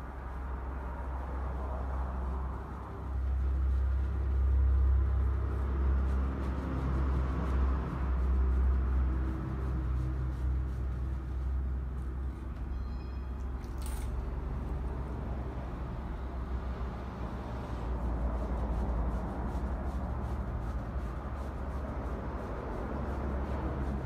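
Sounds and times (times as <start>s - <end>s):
low rumble of road traffic: 0.0s - 24.0s.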